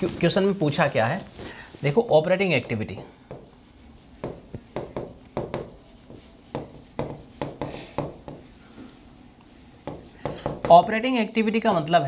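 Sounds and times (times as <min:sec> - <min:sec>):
pen writing on a board: 0:03.0 - 0:08.5, 0:09.8 - 0:10.8.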